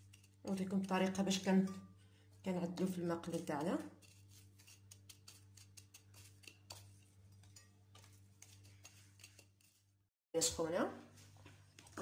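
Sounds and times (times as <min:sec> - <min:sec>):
gritty ticks and scratches on plate: 0:00.0 - 0:01.8, 0:03.0 - 0:09.9.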